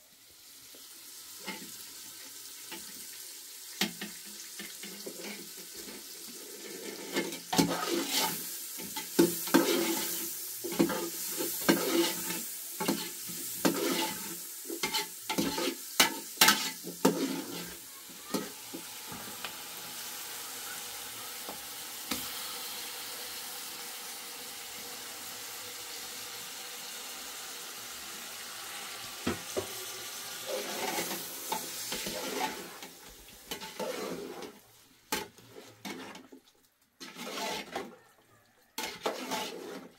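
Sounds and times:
food frying sizzle: 0.0 - 39.9
utensil scraping a pan: 4.6 - 19.4, 29.4 - 38.0, 38.8 - 39.9.

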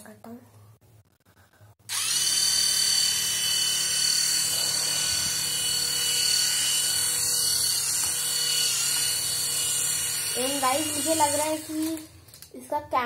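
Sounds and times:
toy propeller motor whining: 1.9 - 12.1.

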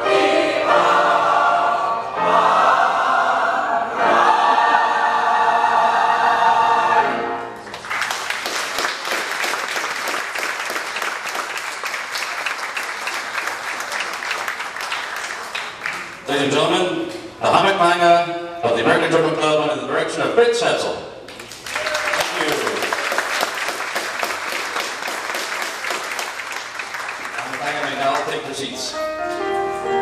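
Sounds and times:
mixed choir singing: 0.0 - 7.5
audience applause: 7.6 - 16.3, 21.3 - 28.8.

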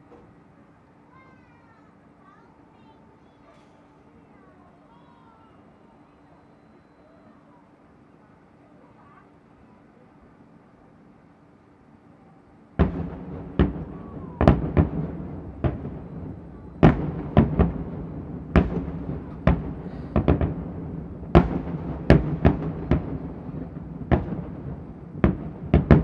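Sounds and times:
firework shells bursting: 12.8 - 26.0.

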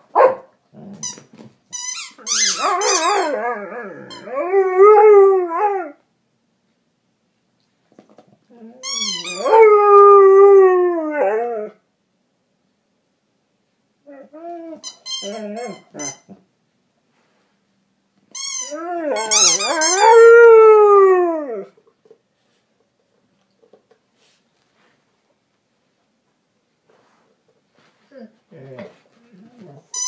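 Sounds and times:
dog whining: 2.1 - 6.0, 8.5 - 9.8, 14.1 - 16.4, 18.4 - 20.4
dog howling: 2.6 - 6.0.

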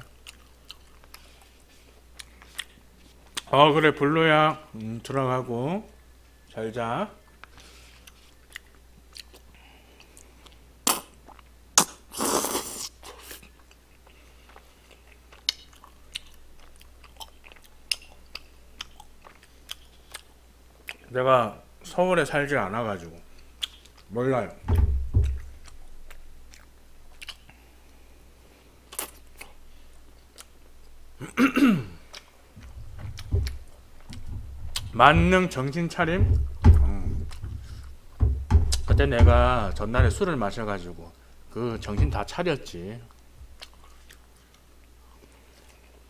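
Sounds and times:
chewing: 0.0 - 3.5, 7.2 - 11.6, 12.4 - 21.1, 23.3 - 24.1, 25.2 - 28.0, 28.9 - 31.0, 32.0 - 34.9, 43.1 - 46.0.

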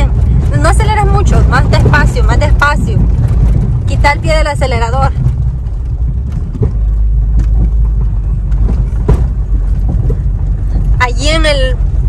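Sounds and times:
engine and tyres rumbling: 0.0 - 12.0
short knocks: 6.0 - 11.0.

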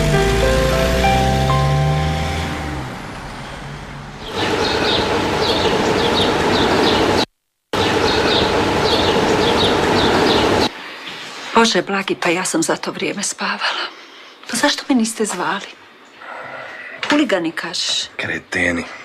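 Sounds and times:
background music held notes: 0.0 - 3.8
city street traffic: 0.0 - 10.7.

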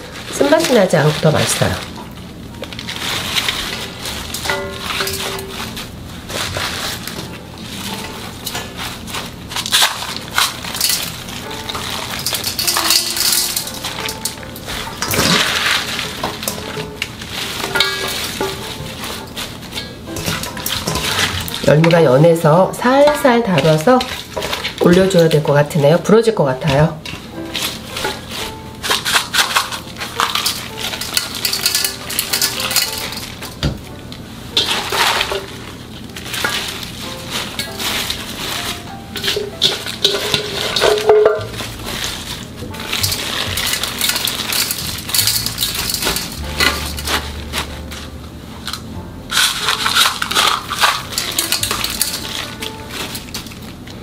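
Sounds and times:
leafy greens rustling and crackling: 0.0 - 54.0
quiet background music: 0.0 - 54.0
salt pattering on leaves: 0.1 - 22.5, 34.5 - 48.2, 49.3 - 53.8.

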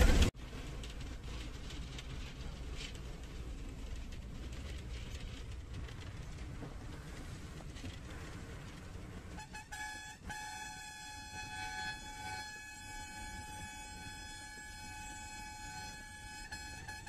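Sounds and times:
bus engine and road noise: 0.0 - 17.0
vehicle horn blowing: 9.3 - 17.0.

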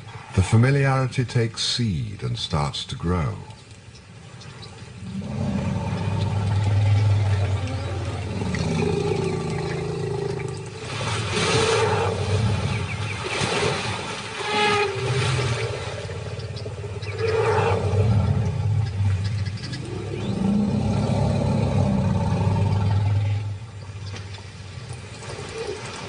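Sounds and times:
deep steady rumble: 4.8 - 10.9, 15.0 - 24.3
lions growling and snarling: 5.0 - 13.0, 15.0 - 23.7.

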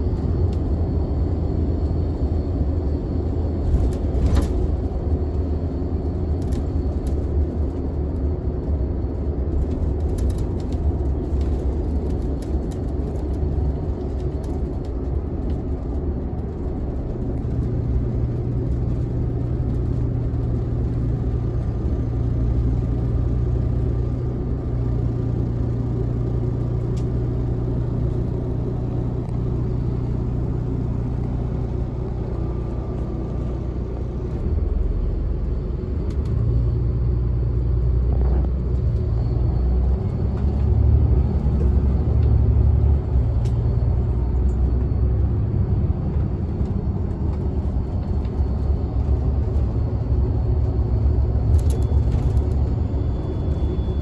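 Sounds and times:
bus engine and road rumble: 0.0 - 54.0.

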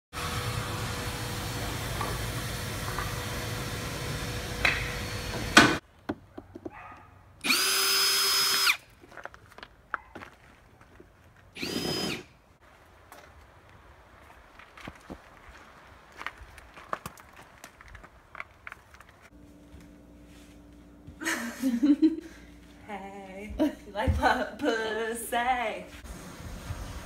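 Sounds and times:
cordless drill driving a screw: 7.4 - 8.8, 11.6 - 12.3
steady background hum: 17.1 - 26.7.

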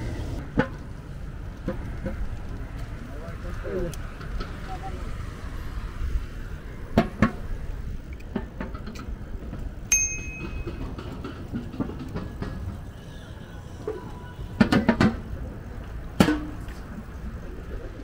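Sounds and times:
bike rattling over bumps: 0.0 - 13.4
bicycle rolling on pavement: 0.0 - 18.0
short metallic ring: 9.9 - 11.2.

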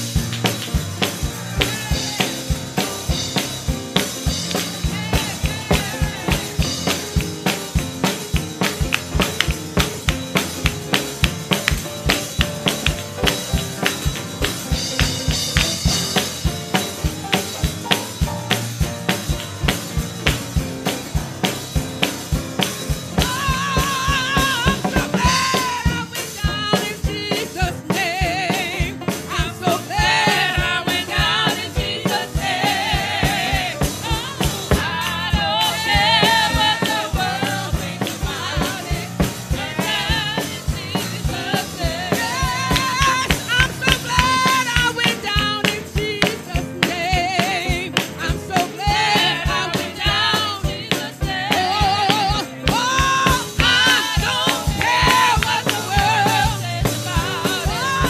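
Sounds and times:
church praise band: 0.0 - 58.0
drum kit beat: 0.0 - 58.0
women singing: 1.2 - 8.7, 23.1 - 58.0.

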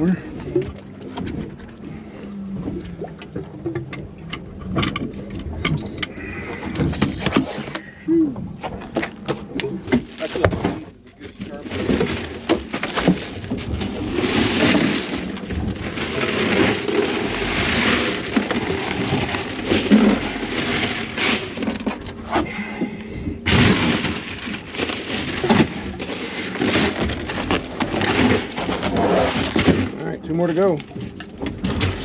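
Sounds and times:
water slapping against boat hull: 0.0 - 32.0.

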